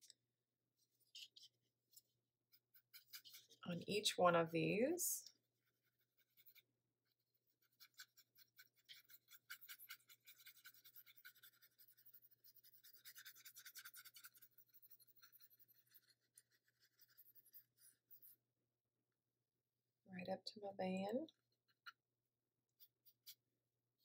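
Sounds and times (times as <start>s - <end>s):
paintbrush scratching on paper: 0.8s - 18.5s.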